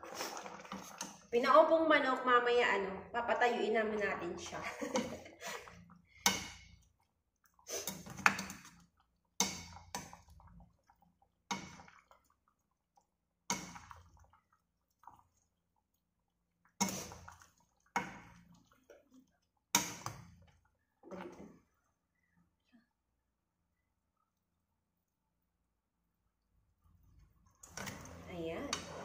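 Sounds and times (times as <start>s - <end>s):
spoon scraping pan: 0.0s - 1.3s, 7.6s - 8.8s, 16.8s - 18.4s, 27.6s - 29.0s
sauce splashing: 0.0s - 1.4s, 4.4s - 21.8s.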